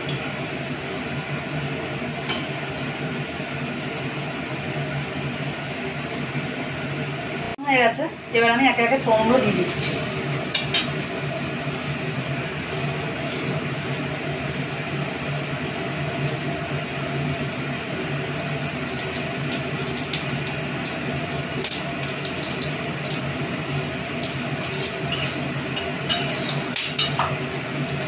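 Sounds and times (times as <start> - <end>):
spices crackling in hot oil: 9.4 - 28.0
metal spatula scraping pan: 25.1 - 27.3.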